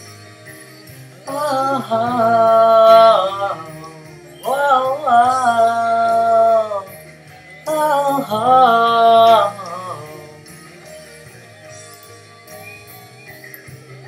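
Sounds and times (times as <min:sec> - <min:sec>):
person singing wordless notes: 0:01.3 - 0:10.6.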